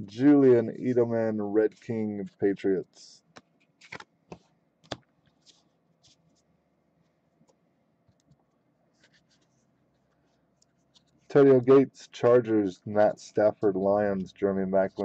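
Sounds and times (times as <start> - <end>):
cards ticking and scraping: 3.3 - 6.5.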